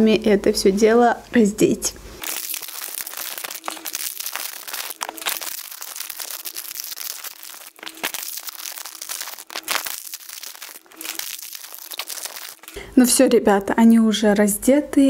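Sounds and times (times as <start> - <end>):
plastic wrappers crackling and tearing: 2.2 - 14.0.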